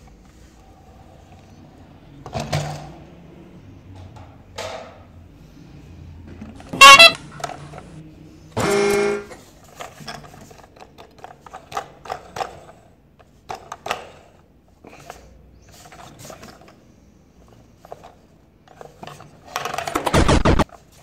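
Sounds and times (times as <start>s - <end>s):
electronic toy train horn: 6.7s - 7.3s, 8.6s - 9.3s.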